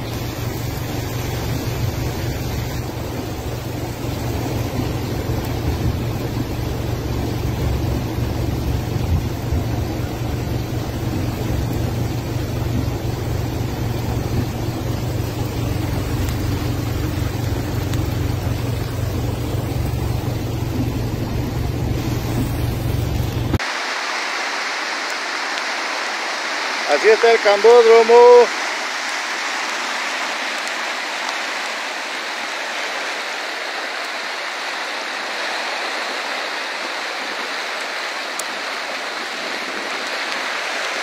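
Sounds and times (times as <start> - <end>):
car engine running: 0.0 - 23.6
tyres hissing on wet road: 0.0 - 41.0.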